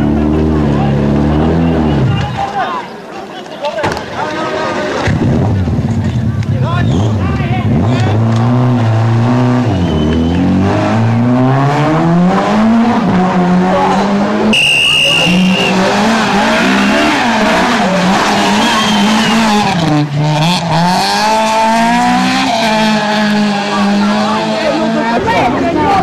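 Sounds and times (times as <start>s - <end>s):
rally car engines revving: 0.0s - 2.4s, 4.6s - 26.0s
high steady tone: 14.5s - 15.8s.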